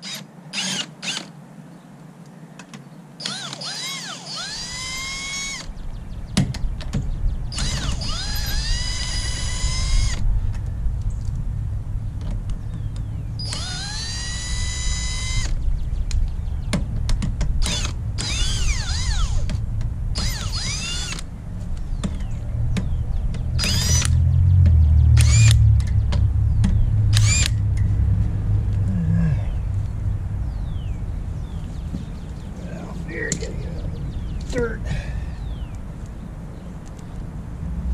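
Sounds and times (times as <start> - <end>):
power tool motor whine: 0.0 - 1.3, 3.2 - 5.7, 7.5 - 10.2, 13.4 - 15.6, 17.6 - 19.5, 20.2 - 21.2, 23.6 - 24.2, 25.2 - 25.6, 27.1 - 27.6
low rumble: 4.5 - 37.9.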